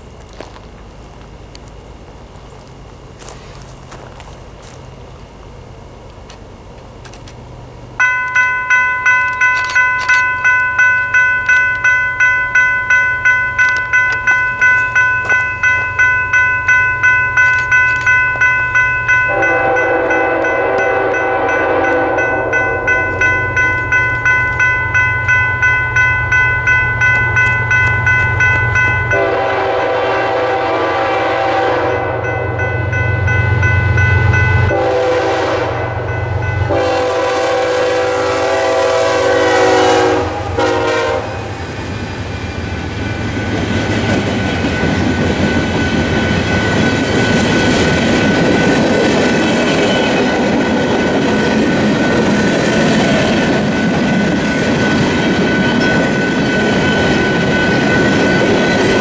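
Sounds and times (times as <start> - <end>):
train rumbling: 0.0 - 59.0
crossing bells ringing rapidly: 8.0 - 59.0
locomotive air horn blasts: 19.3 - 22.7, 29.1 - 32.3, 34.7 - 36.0, 36.7 - 41.6.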